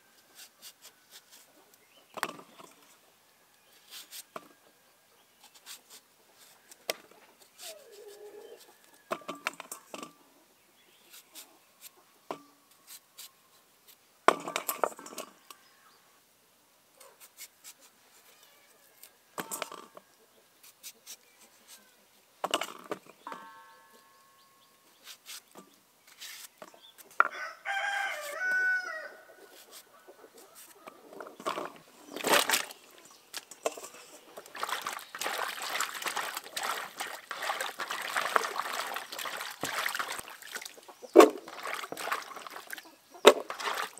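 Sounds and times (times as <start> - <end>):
rooster crowing: 27.2 - 29.4.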